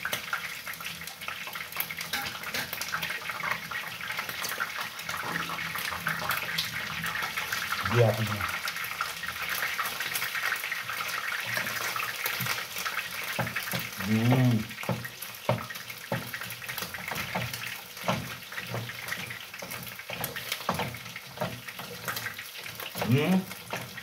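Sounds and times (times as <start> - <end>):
person humming: 14.0 - 14.7.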